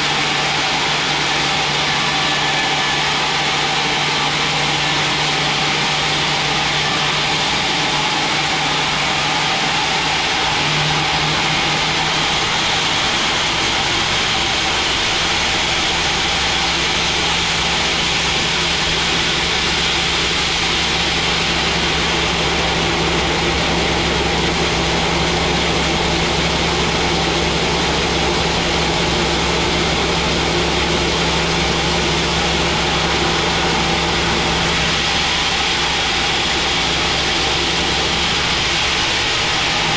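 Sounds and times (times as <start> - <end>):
band sawmill cutting log: 0.0 - 39.9.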